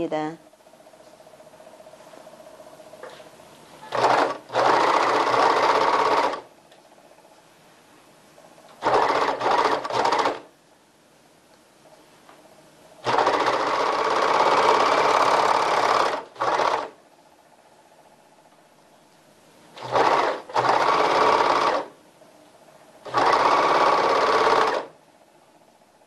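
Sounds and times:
overlock machine stitching: 0:03.8 - 0:06.5, 0:08.8 - 0:10.5, 0:13.0 - 0:17.0, 0:19.8 - 0:22.0, 0:23.0 - 0:25.0.

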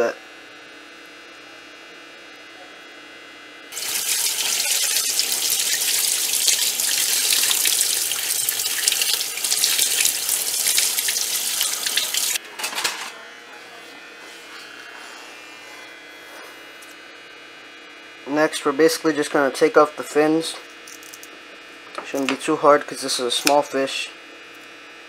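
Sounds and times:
faucet water splashing on fish: 0:03.7 - 0:12.4.

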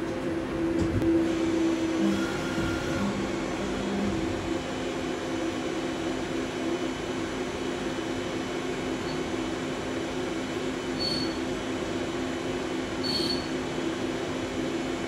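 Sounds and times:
machine hum: 0:00.0 - 0:14.2
whining motor tones: 0:00.9 - 0:04.6.

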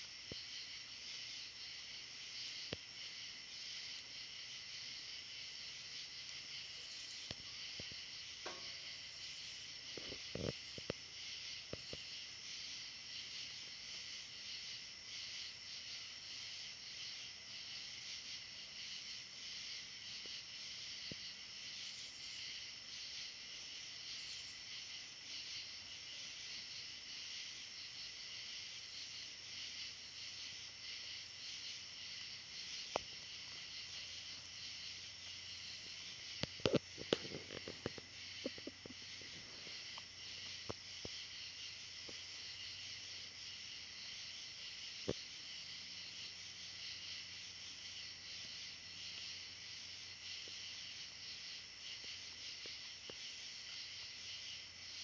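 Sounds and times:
night insects trilling: 0:00.0 - 0:55.0.

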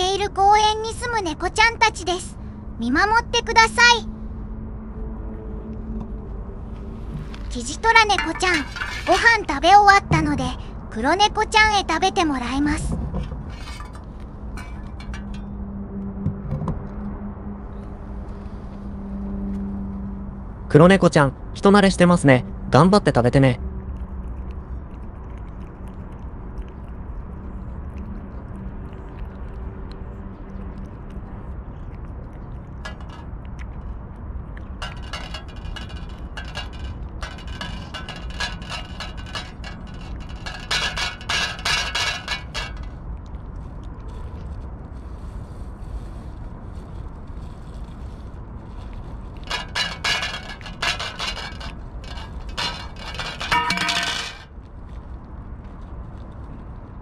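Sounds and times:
low outdoor rumble: 0:00.0 - 0:57.0
clinks against metal bowl: 0:08.2 - 0:09.5, 0:13.1 - 0:15.6, 0:32.8 - 0:33.2, 0:34.8 - 0:42.9, 0:49.4 - 0:54.5
cat chewing and licking: 0:23.6 - 0:41.5, 0:42.4 - 0:49.5.

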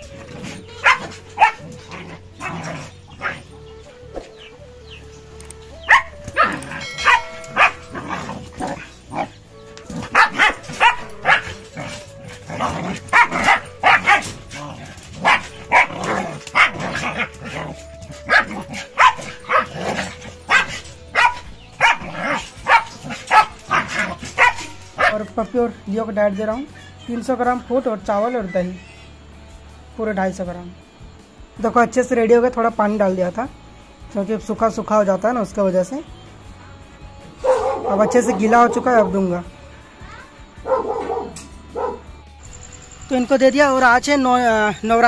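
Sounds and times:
dogs barking: 0:00.0 - 0:05.0, 0:05.6 - 0:27.1, 0:37.3 - 0:39.5, 0:40.6 - 0:42.2
quiet background music: 0:00.0 - 0:45.0.

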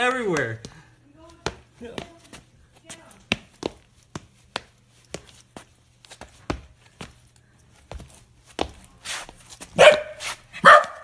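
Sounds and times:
shoe stamping on floor: 0:00.0 - 0:11.0.

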